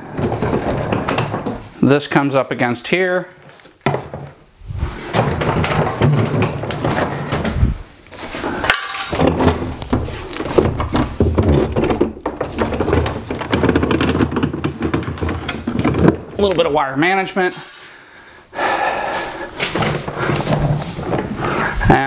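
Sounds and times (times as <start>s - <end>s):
furniture rolling on dollies: 0.0s - 1.8s, 4.0s - 16.9s, 19.5s - 22.0s
knocks of furniture: 3.8s - 7.8s, 9.1s - 16.3s.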